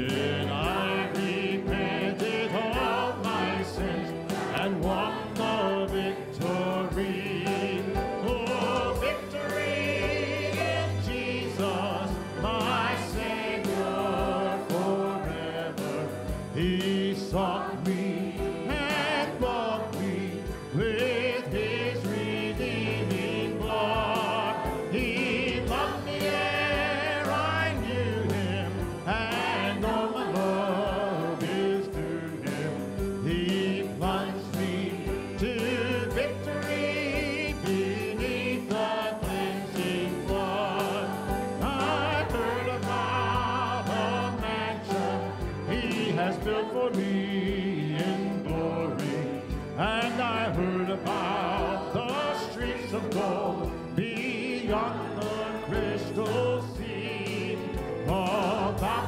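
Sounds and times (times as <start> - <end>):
congregation singing a hymn: 0.0 - 59.0
instrumental accompaniment: 0.0 - 59.0.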